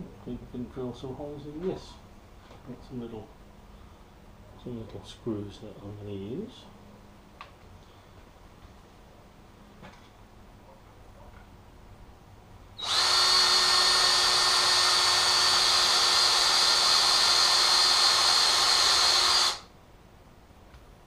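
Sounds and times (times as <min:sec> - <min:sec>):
cordless drill boring into wood: 0:12.8 - 0:19.7.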